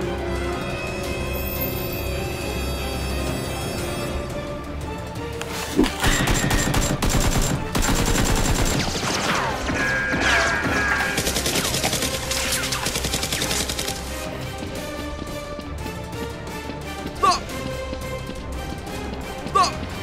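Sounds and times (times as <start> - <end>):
background music: 0.0 - 20.0
rapid gunfire: 6.0 - 9.7, 10.4 - 14.2.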